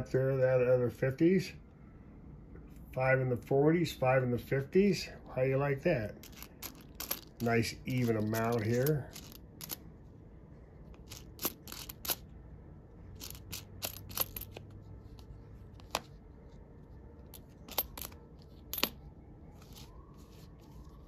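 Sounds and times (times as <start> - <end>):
coins clinking: 6.2 - 9.8, 11.0 - 12.3, 13.1 - 16.0, 17.2 - 19.0.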